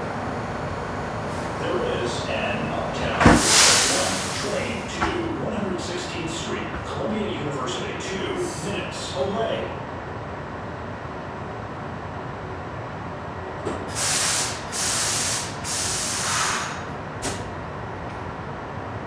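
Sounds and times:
subway car humming: 0.0 - 19.0
air brakes hissing: 3.2 - 4.9, 13.8 - 17.5.

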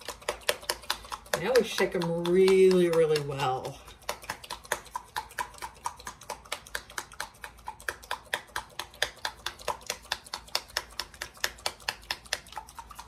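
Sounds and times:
plastic bottle being shaken: 0.0 - 5.0.

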